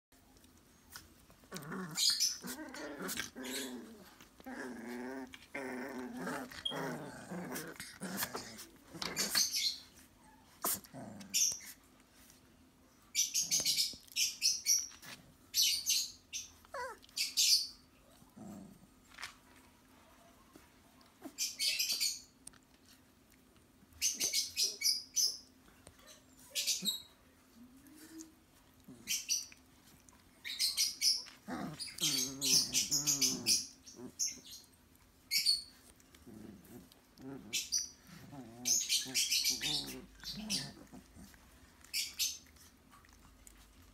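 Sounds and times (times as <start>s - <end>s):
puppies whining: 0.2s - 12.0s, 13.2s - 23.0s, 23.9s - 43.9s.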